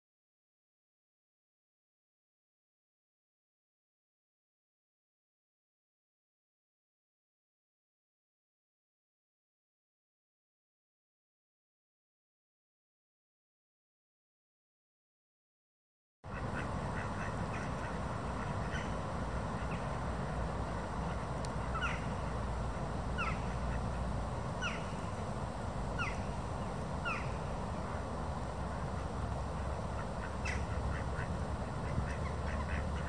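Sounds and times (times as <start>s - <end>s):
steady background hiss: 16.3s - 33.0s.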